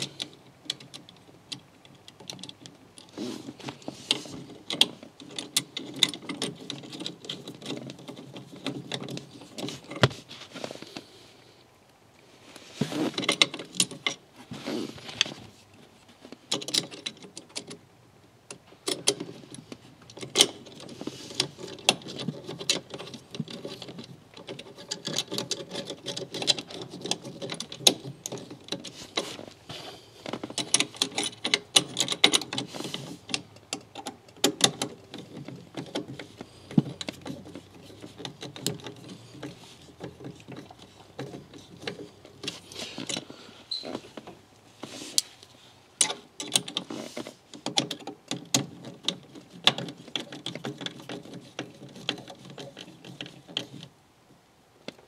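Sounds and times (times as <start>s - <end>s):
small metal parts clicking: 18.5s - 29.3s, 30.2s - 44.4s, 46.0s - 53.9s.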